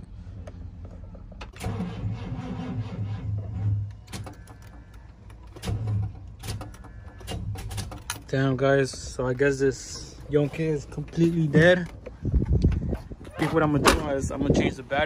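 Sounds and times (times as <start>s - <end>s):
starter motor cranking weakly: 1.6s - 4.8s.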